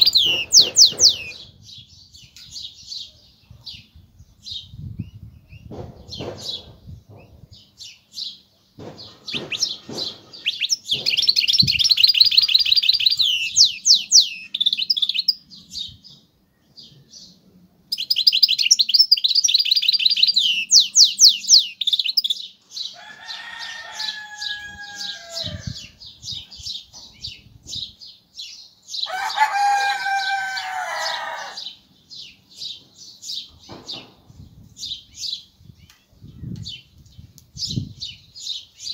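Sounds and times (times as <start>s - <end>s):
bird singing high twitters: 0.0s - 38.9s.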